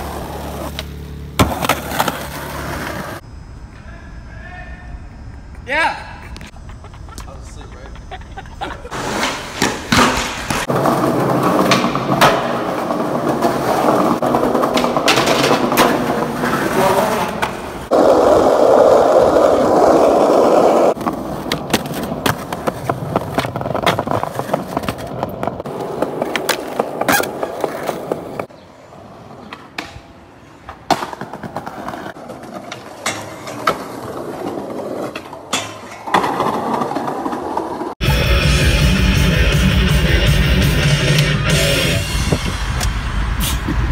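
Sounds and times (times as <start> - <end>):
skateboard wheels rolling on pavement: 0.0 - 3.2, 5.0 - 38.2
skateboard clacks: 9.0 - 28.5, 29.4 - 37.9.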